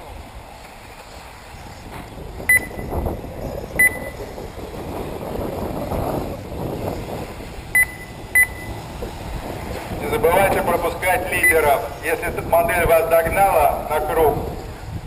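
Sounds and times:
wind and track noise: 0.0 - 15.0
short high electronic beeps: 2.5 - 2.9, 3.8 - 4.2, 7.8 - 8.8.

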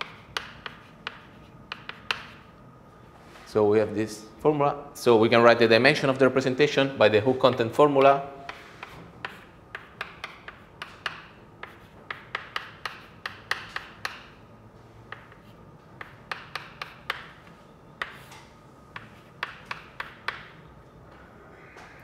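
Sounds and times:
chalk tapping and scratching on blackboard: 0.0 - 2.6, 7.4 - 14.4, 15.1 - 20.5.

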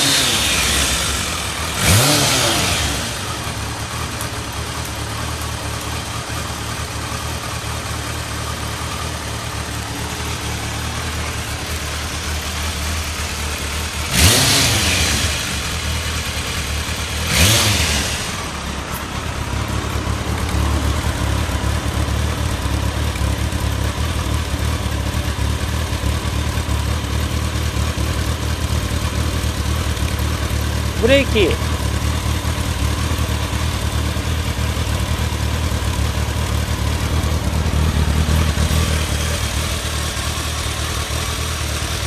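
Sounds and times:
motorcycle engine idling and revving: 0.0 - 42.0.

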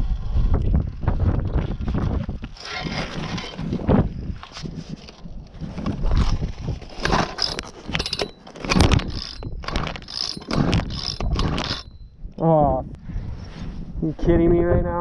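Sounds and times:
recoil starter cord whirring: 2.4 - 3.8, 6.9 - 12.0.

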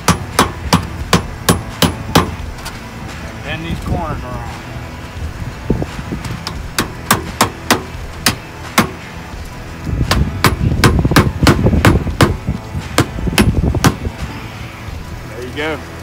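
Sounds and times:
hammer tapping on metal: 0.0 - 2.4, 6.4 - 9.0.

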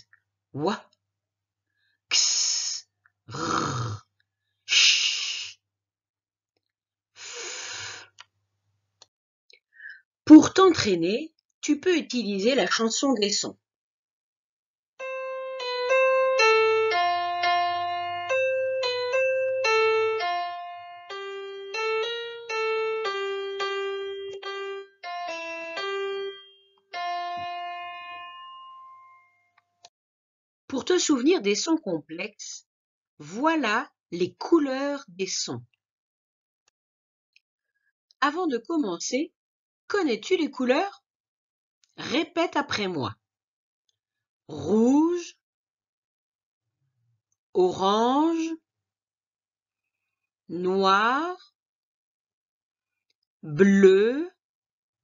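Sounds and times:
keyboard melody: 15.0 - 29.9.

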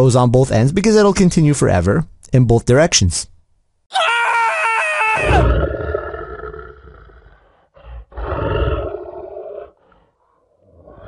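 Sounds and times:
lion roaring: 5.2 - 11.0
lion grunt: 5.4 - 11.0.

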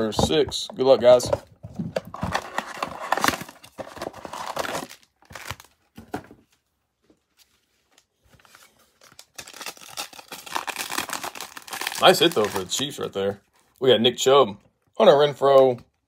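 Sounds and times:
cardboard tearing: 2.1 - 5.7, 9.1 - 12.8
plastic foil crinkling: 8.4 - 13.0.

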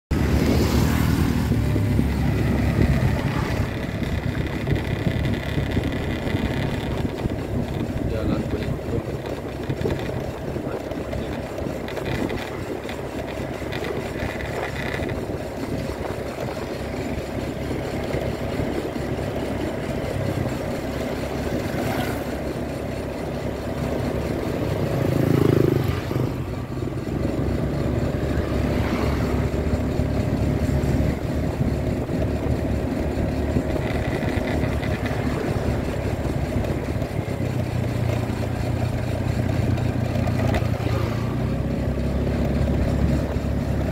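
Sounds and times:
wind noise: 0.1 - 17.2
motorcycle engine running: 0.1 - 43.9
road noise: 0.1 - 43.9.

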